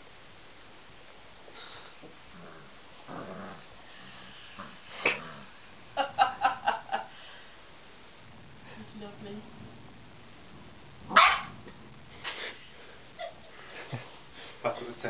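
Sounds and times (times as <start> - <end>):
puppy barking and yapping: 11.1 - 11.6.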